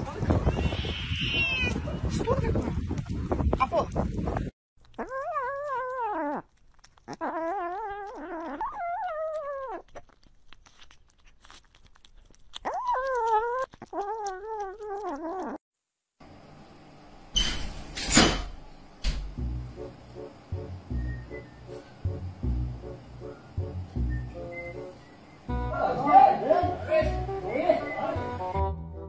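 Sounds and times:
kitten chewing and licking: 4.8 - 15.6
kitten whining hum: 4.9 - 15.6.

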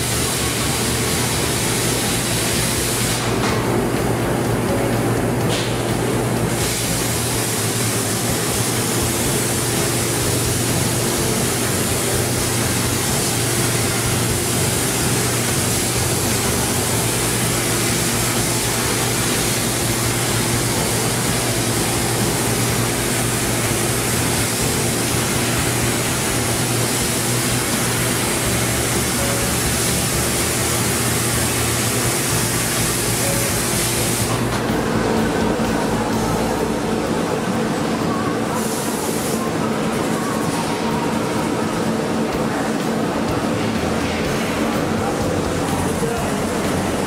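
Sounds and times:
cutting torch hissing: 0.0 - 3.6, 6.4 - 34.5.

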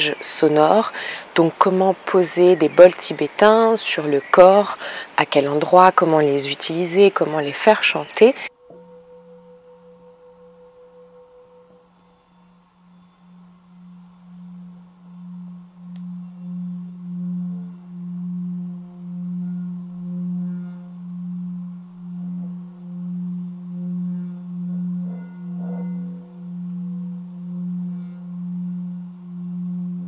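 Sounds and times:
singing bowl low tone: 8.5 - 30.0.

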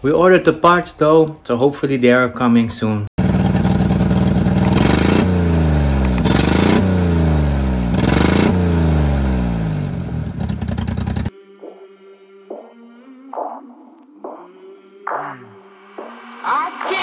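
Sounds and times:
small engine revving: 3.2 - 11.3.

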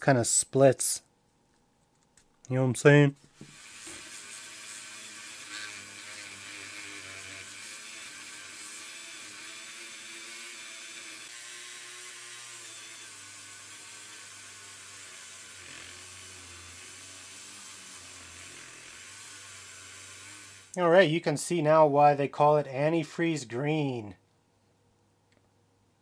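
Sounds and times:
rotary tool buffing whir: 3.4 - 20.8.

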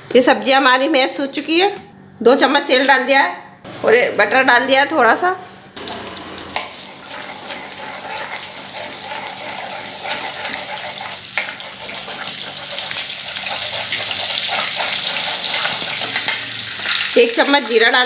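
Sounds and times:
butter sizzling in hot oil: 6.6 - 18.0.

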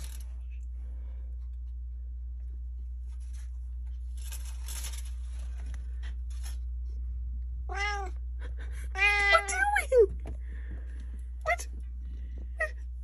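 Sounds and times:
cat meowing: 7.7 - 8.2, 9.0 - 9.6.

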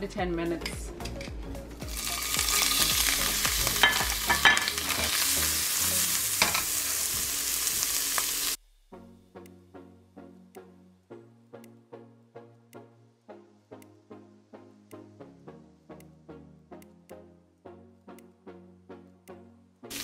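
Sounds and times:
background music with plucked notes: 0.0 - 20.0
shrimp sizzling in a frying pan: 1.9 - 8.6.

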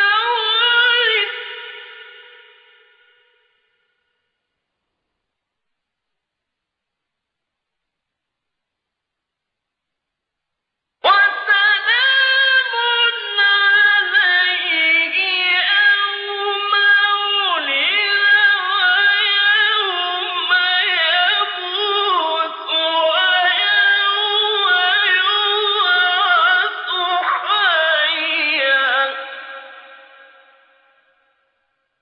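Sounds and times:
man chanting recitation: 11.1 - 30.0.

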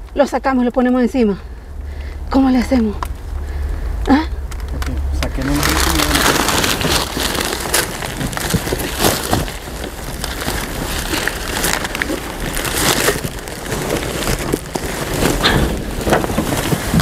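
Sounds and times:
low rumble: 0.0 - 17.0
boxes knocking and scraping: 5.2 - 17.0.

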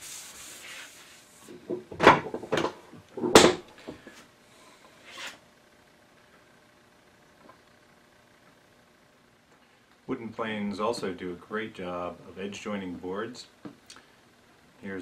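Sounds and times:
wood shavings rubbing on board: 0.0 - 1.4.

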